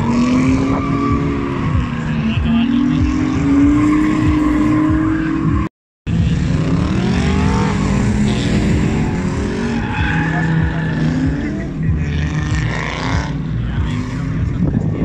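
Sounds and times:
car engines revving: 0:00.0 - 0:15.0.

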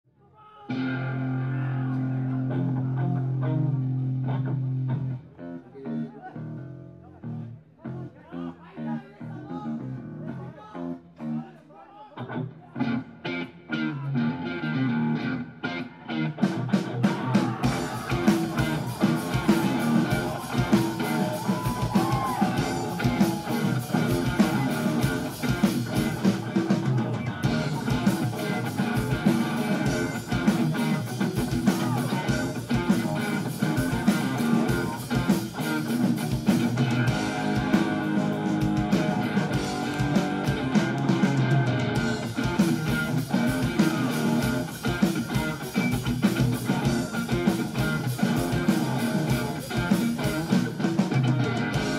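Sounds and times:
electric guitars: 0:00.7 - 0:08.0, 0:12.2 - 0:51.9
bass guitar: 0:00.7 - 0:11.5, 0:12.2 - 0:51.9
steady drumbeat: 0:16.5 - 0:51.9.

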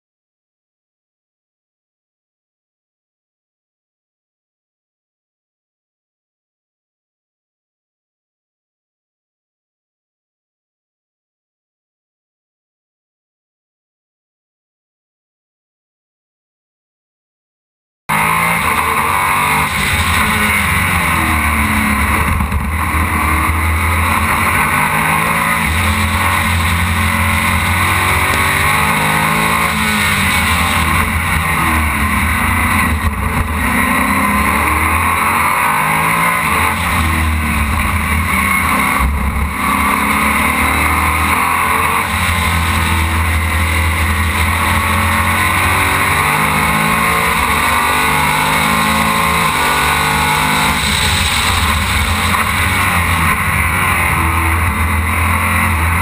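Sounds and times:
racing car engine revving: 0:18.1 - 0:56.0
steady rushing noise: 0:18.2 - 0:56.0.

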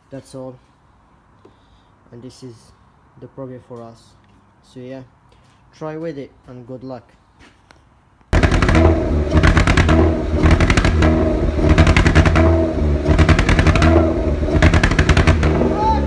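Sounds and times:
car engine running unevenly: 0:08.4 - 0:16.0.

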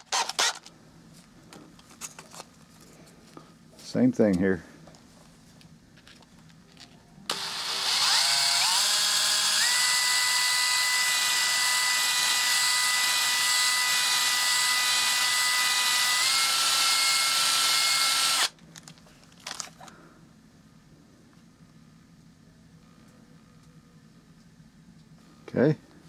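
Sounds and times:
cordless drill motor whine: 0:07.3 - 0:18.6.

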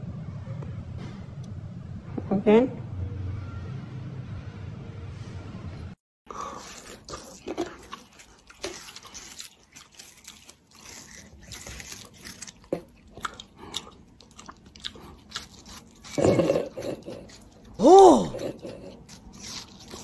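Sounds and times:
crunching and chewing watermelon: 0:06.3 - 0:20.0.

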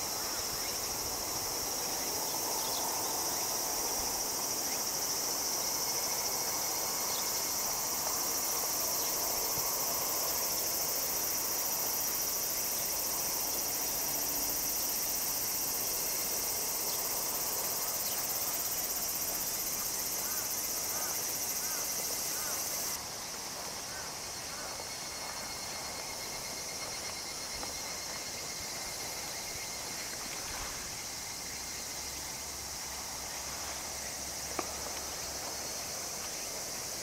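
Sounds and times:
insect trilling: 0:09.9 - 0:23.0.

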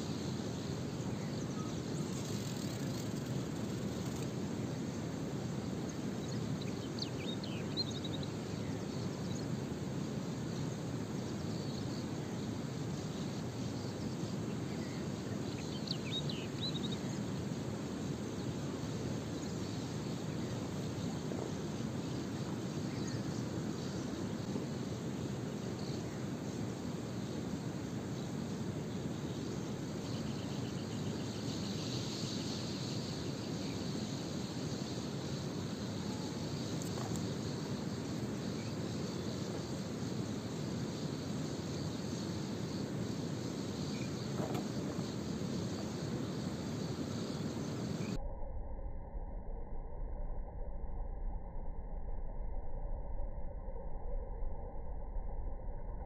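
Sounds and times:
pulsing insect-like trill: 0:00.0 - 0:48.2.

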